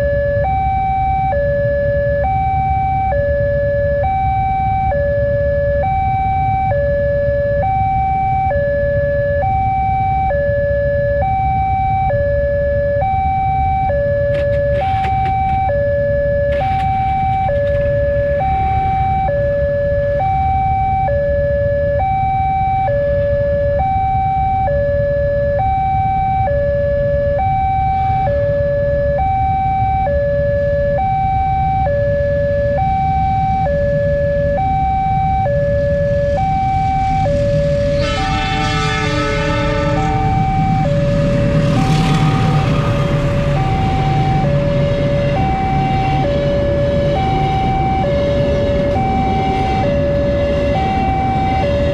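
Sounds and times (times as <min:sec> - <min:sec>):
level crossing alarm chimes: 0:00.0 - 0:38.1, 0:43.2 - 0:51.9
passing train rumble: 0:16.4 - 0:20.4, 0:34.5 - 0:51.9
train horn: 0:36.2 - 0:51.9.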